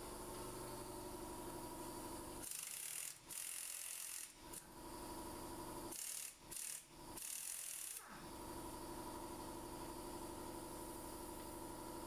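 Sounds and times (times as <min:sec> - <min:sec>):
air impact wrench rattling: 0:02.4 - 0:04.6, 0:05.9 - 0:08.1.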